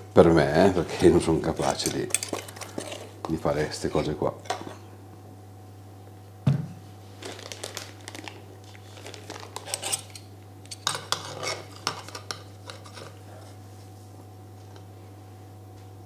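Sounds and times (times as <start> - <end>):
plastic bag crinkling: 7.1 - 9.8.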